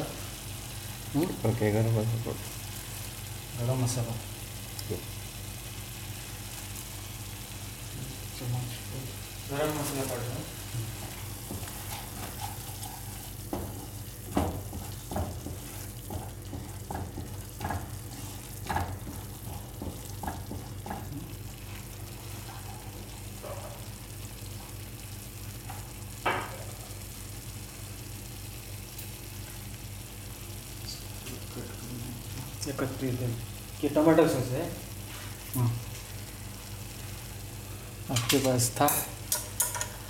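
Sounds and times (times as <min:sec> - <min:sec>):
sauce sizzling in oil: 0:00.0 - 0:40.0
wooden spatula scraping a pan: 0:10.8 - 0:20.7.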